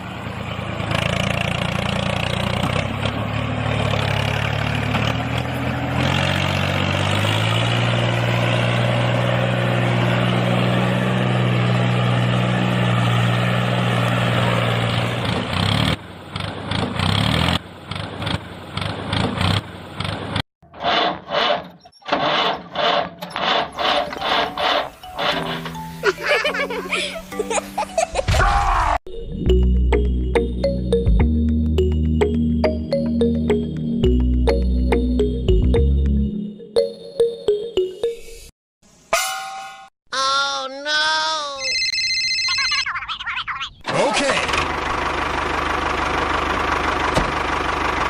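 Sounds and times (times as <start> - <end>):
tractor engine running: 0.0 - 27.4, 43.9 - 48.0.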